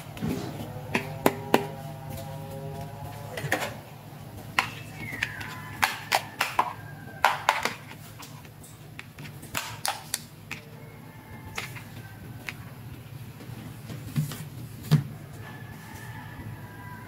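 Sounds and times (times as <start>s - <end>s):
steady low hum: 0.0s - 5.8s.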